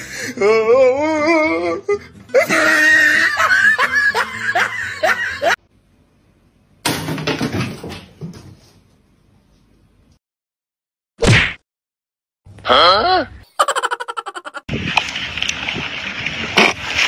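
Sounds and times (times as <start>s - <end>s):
laughter with squeals: 2.3s - 5.6s, 13.5s - 14.7s.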